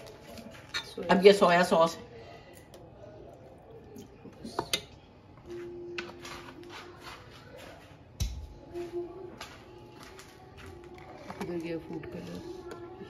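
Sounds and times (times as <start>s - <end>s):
metal spoon scraping a pot: 0.0s - 1.2s.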